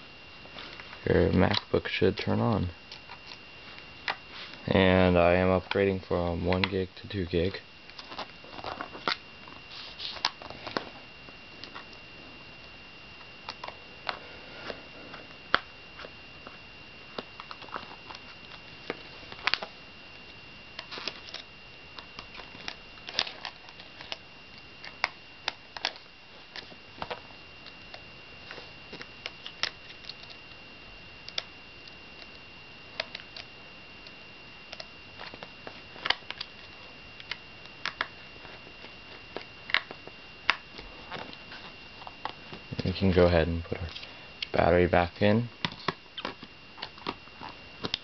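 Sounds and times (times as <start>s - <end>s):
faint high-pitched whine: 0.0s - 48.0s.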